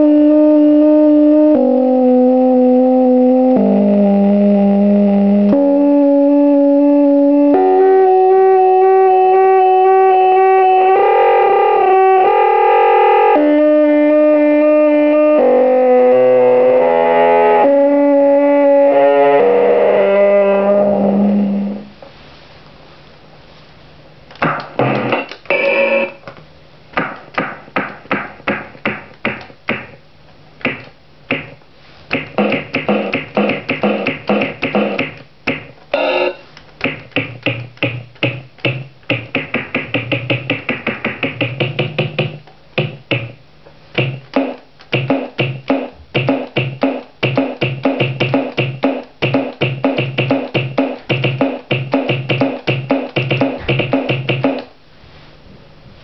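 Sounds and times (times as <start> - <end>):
square-wave synth pulsed notes: 0.0 - 21.9, 32.2 - 35.2, 35.9 - 37.5.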